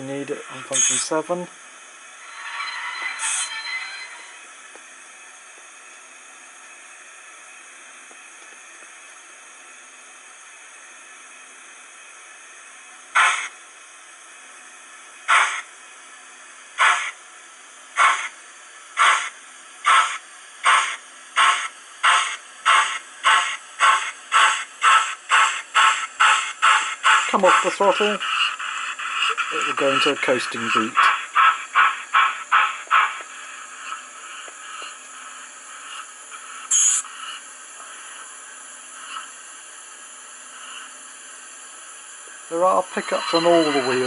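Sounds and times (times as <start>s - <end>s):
steam exhaust chuffs: 13.1s - 13.5s, 18.0s - 18.4s, 19.0s - 37.4s, 42.5s - 44.0s
steam engine hiss: 13.1s - 13.6s, 15.3s - 15.7s, 16.7s - 17.2s, 17.9s - 44.0s.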